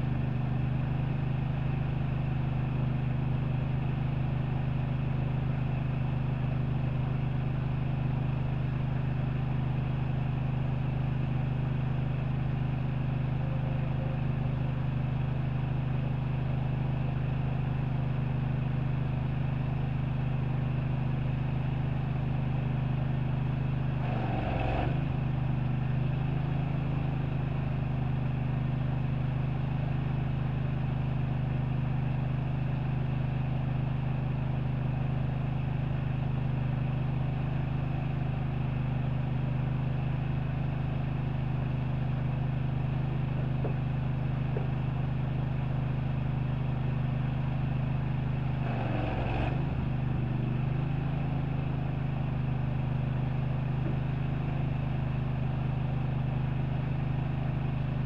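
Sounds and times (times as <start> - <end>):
engine droning: 35.4 - 58.0.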